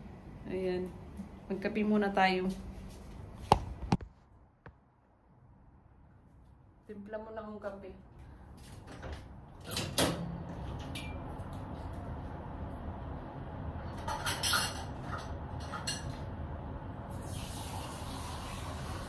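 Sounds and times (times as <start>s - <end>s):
steady low hum: 0.0s - 17.2s
dishes and utensils clinking: 13.9s - 16.2s.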